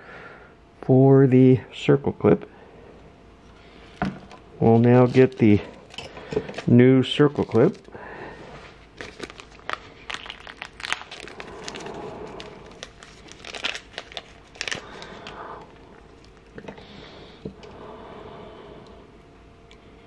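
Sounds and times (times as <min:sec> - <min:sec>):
plastic bag crinkling: 0:04.8 - 0:07.9, 0:08.8 - 0:16.6.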